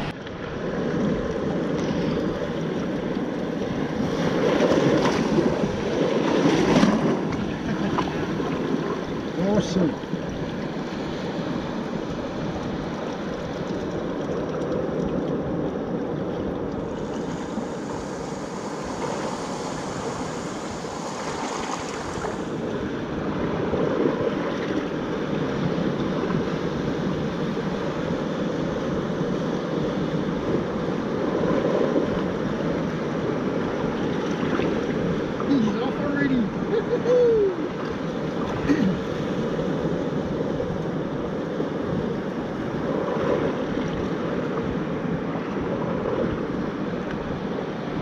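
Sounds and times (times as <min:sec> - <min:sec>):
surf in shallow water: 0:00.0 - 0:48.0
wind on microphone: 0:00.0 - 0:48.0.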